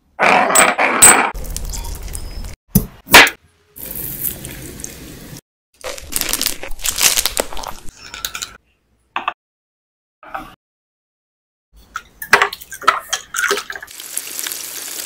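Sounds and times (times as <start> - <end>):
food crunching and crinkling: 5.8 - 8.0.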